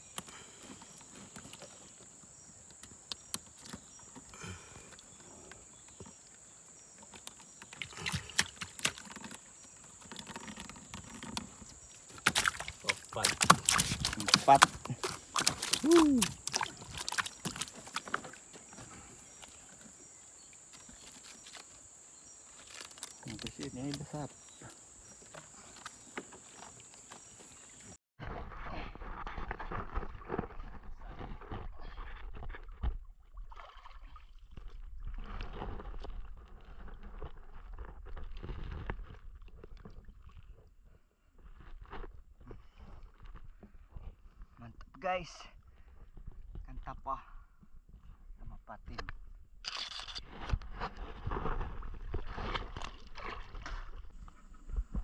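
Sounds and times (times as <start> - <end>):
fish flopping in wooden boat: 2.8 - 21.8, 22.5 - 27.8
water splashing and dripping: 7.0 - 19.8, 33.2 - 36.0.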